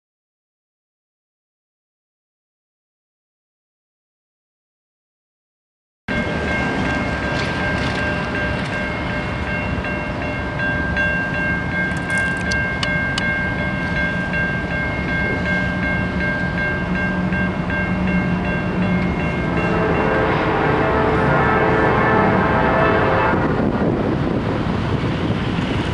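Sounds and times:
crossing warning bell ringing: 0:06.1 - 0:23.7
low hum of approaching train: 0:06.1 - 0:25.9.

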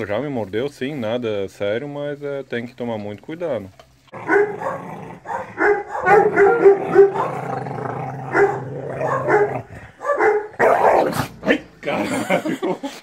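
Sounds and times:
dog growling: 0:04.1 - 0:10.0, 0:10.6 - 0:12.4
dog snarling: 0:04.1 - 0:12.4.

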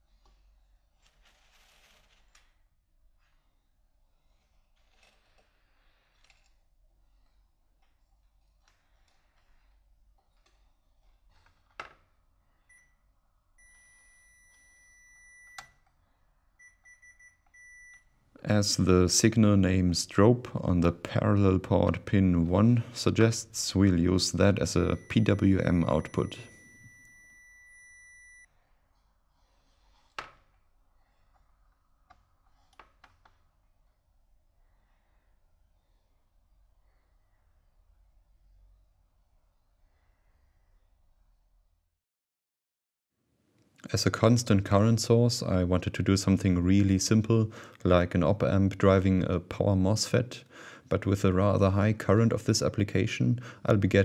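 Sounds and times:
multimeter continuity beeps: 0:13.6 - 0:15.8, 0:16.6 - 0:18.1, 0:24.4 - 0:28.5
steady electronic beep: 0:24.7 - 0:28.5.

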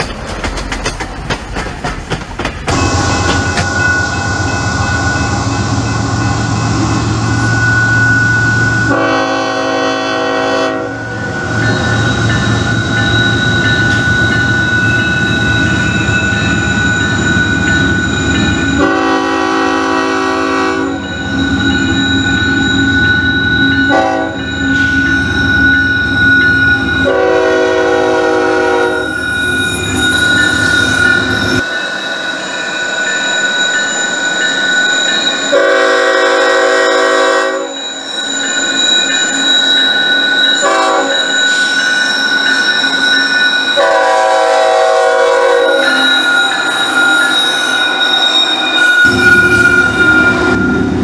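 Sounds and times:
train rumbling: 0:00.0 - 0:51.0
locomotive air horn blasts: 0:02.7 - 0:05.5, 0:08.8 - 0:11.3, 0:18.8 - 0:21.1, 0:23.8 - 0:24.5, 0:27.0 - 0:29.1, 0:35.5 - 0:37.8, 0:40.6 - 0:41.3, 0:43.8 - 0:46.2, 0:48.8 - 0:51.0
high-pitched ringing tone: 0:02.7 - 0:09.2, 0:10.9 - 0:19.1, 0:20.6 - 0:27.6, 0:28.8 - 0:44.2, 0:45.5 - 0:51.0.

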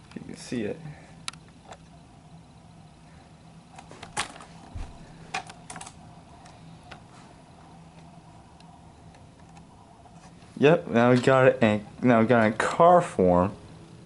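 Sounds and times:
faint steady hum: 0:00.0 - 0:14.0
soft low thump: 0:04.7 - 0:05.1.

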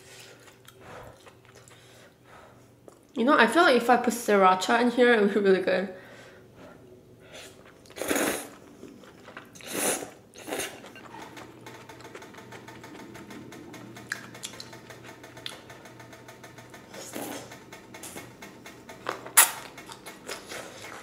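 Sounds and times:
noodles being slurped: 0:07.4 - 0:12.3
electric grill pan clicking: 0:11.2 - 0:20.3.

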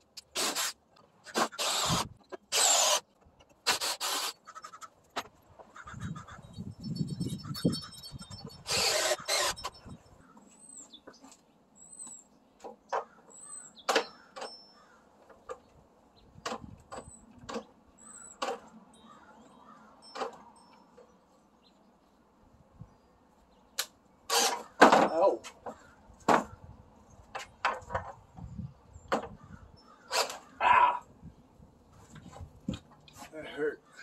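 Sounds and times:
cordless drill driving screws: 0:00.3 - 0:03.0, 0:03.6 - 0:04.4, 0:08.6 - 0:09.8, 0:24.3 - 0:24.7.

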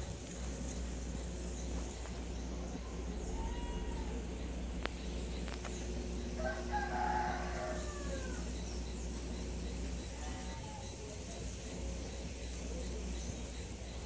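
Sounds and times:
drawn-out bird call: 0:00.0 - 0:14.0
steady low rumble: 0:00.0 - 0:14.0.

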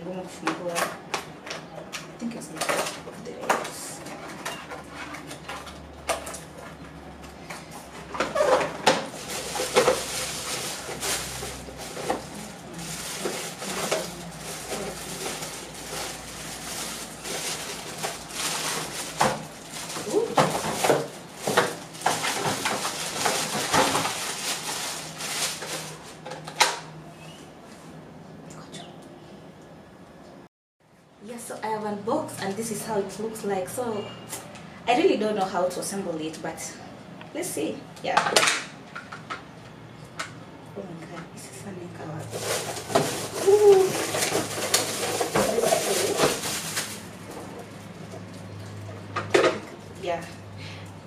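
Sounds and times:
packaging rustling: 0:08.2 - 0:26.6, 0:42.3 - 0:47.9
plastic wrapping crinkling: 0:08.2 - 0:26.6, 0:42.2 - 0:48.6.

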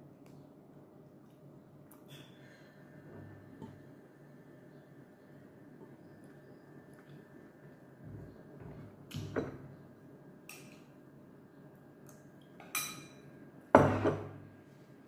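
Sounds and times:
spoon and dishes clinking: 0:12.6 - 0:14.3.

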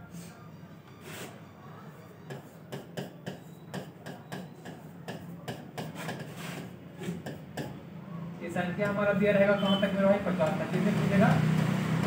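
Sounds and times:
pen tapping on glass board: 0:02.3 - 0:06.4, 0:07.0 - 0:07.8.

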